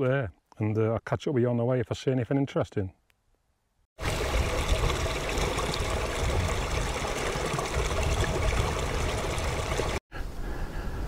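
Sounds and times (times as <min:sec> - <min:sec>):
stream trickling: 0:04.0 - 0:10.0.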